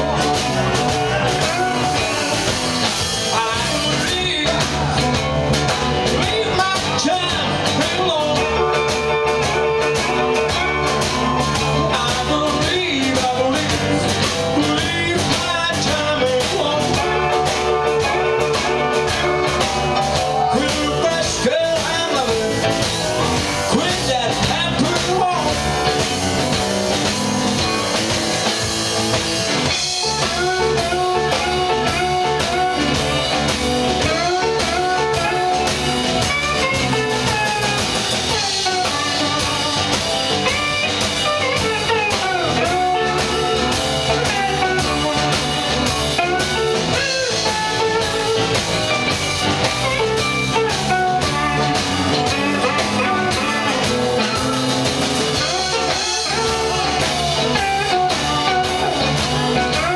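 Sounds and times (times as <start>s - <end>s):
blues band playing: 0.0s - 59.9s
lead guitar bending notes: 0.0s - 59.9s.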